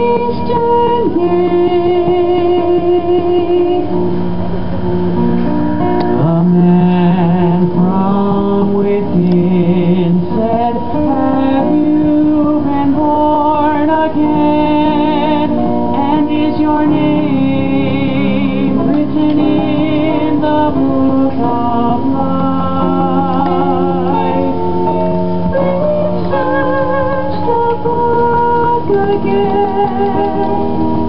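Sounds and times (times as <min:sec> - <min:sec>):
instrumental accompaniment: 0:00.0 - 0:31.0
group singing a church song: 0:06.2 - 0:30.8.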